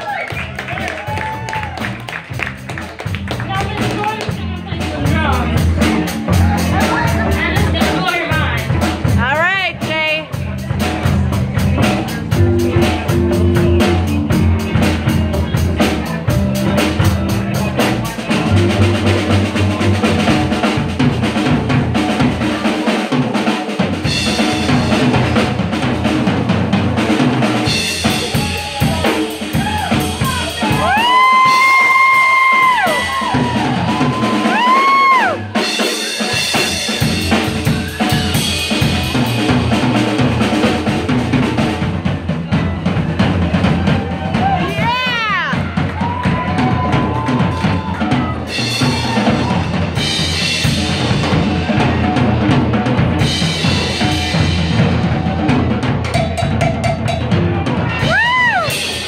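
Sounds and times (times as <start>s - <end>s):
blues band playing: 0.0s - 59.0s
drum kit snare and bass drum: 0.0s - 59.0s
low bass line: 0.4s - 22.6s.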